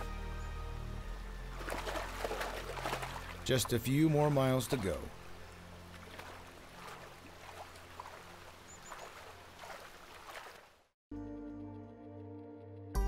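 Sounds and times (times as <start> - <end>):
soft music: 0.0 - 8.9, 11.1 - 13.0
river babbling over gravel: 1.5 - 10.7.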